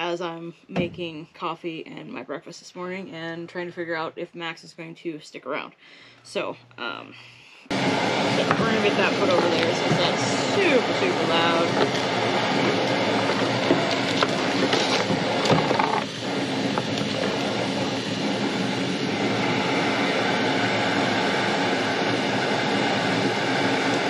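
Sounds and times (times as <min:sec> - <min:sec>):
steady mechanical drone: 0:07.7 - 0:24.0.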